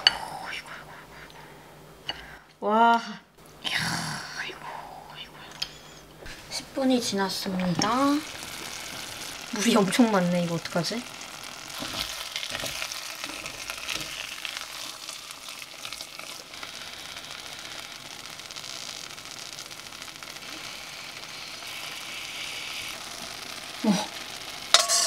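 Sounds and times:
rice simmering and bubbling: 5.6 - 25.0
utensils knocking in pot: 24.7 - 25.0.

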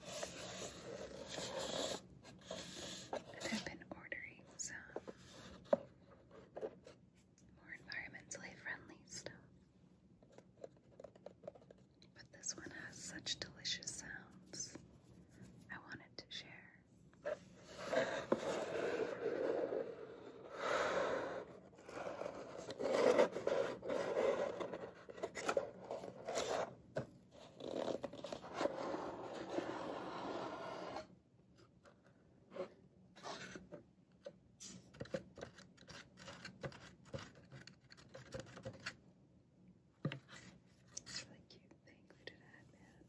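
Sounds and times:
faint taps and handling: 40.0 - 41.2.

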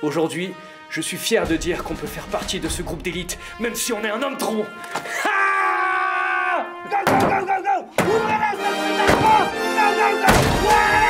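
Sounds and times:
background music: 0.0 - 11.0
heavy thuds on wooden door: 1.4 - 3.8.

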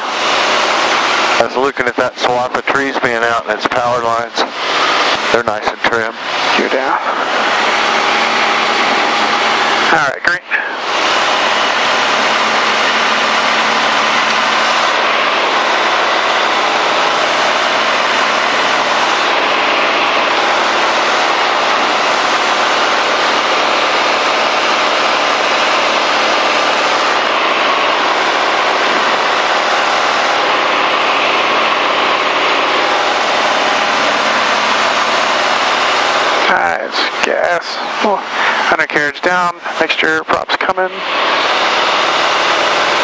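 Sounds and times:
airplane engine and propeller: 0.0 - 43.0
rushing airflow: 4.3 - 5.5, 6.1 - 9.9, 10.5 - 39.9.

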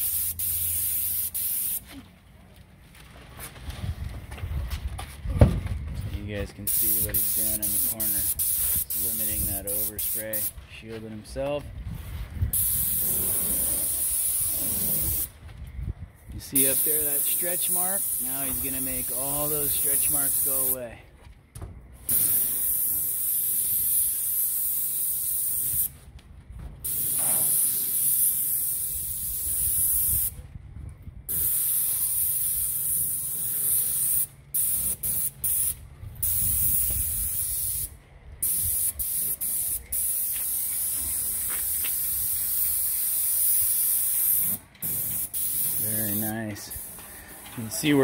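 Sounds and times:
paint spray gun hissing: 0.0 - 1.8, 6.7 - 10.5, 12.6 - 15.3, 16.5 - 20.8, 22.1 - 25.9, 26.9 - 30.3, 31.3 - 47.9.

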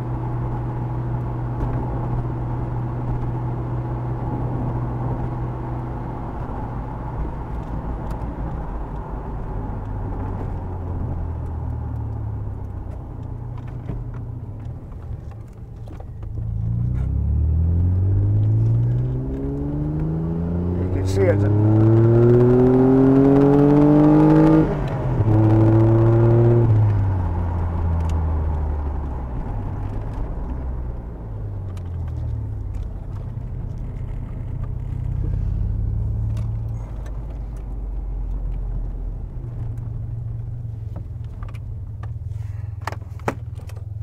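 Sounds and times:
road noise: 0.0 - 44.0
car engine revving: 16.2 - 44.0.

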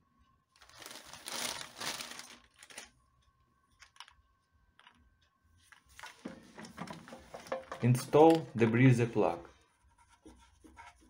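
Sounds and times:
plastic bag crinkling: 0.6 - 3.0.

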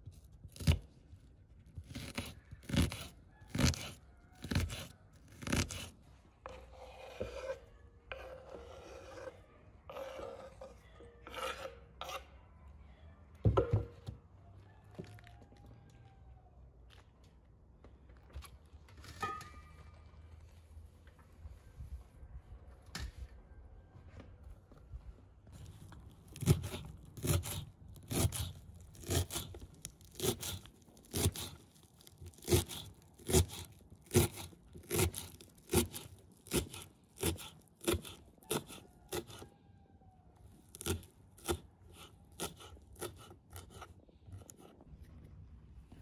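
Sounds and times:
knife chopping herbs on wooden board: 1.8 - 5.9, 26.4 - 31.6, 32.3 - 39.4, 40.8 - 44.5.

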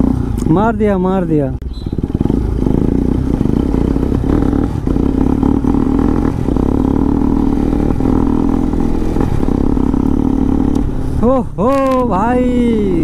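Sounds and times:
motorcycle engine droning: 0.0 - 13.0.

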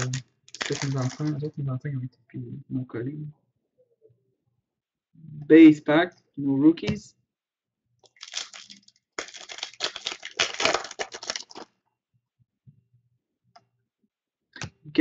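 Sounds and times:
wrapper crinkling and tearing: 0.0 - 1.4, 8.1 - 11.7.

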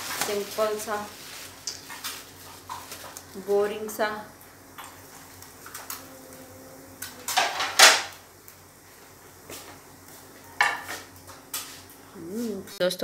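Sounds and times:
faint steady hum: 0.0 - 13.0
household handling clatter: 7.1 - 8.2.

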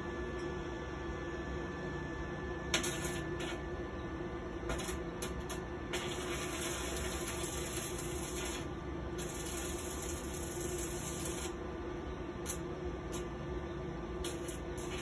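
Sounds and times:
steady low hum: 0.0 - 15.0
arc welding crackling hiss: 2.8 - 3.6, 4.7 - 11.6, 12.4 - 13.3, 14.2 - 15.0.

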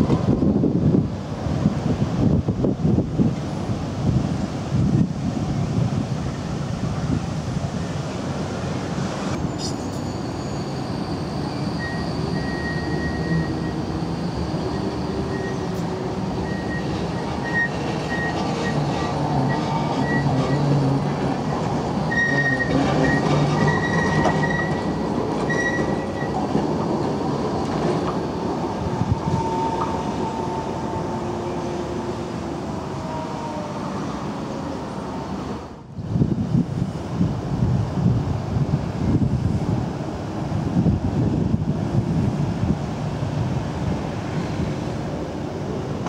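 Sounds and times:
tram wheels squealing: 9.4 - 35.0
tram running gear rumble: 11.8 - 46.0.

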